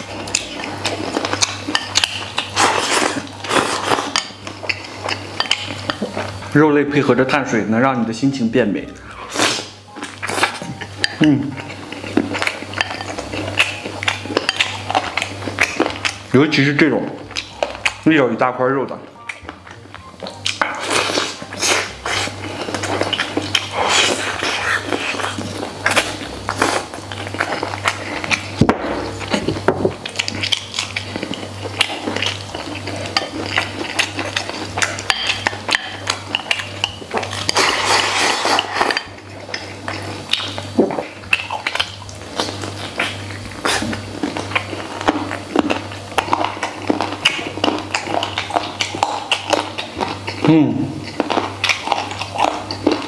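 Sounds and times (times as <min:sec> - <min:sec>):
chewing: 0:00.0 - 0:06.5, 0:09.0 - 0:18.2, 0:19.1 - 0:53.0
chopsticks scraping bowl: 0:32.0 - 0:40.0.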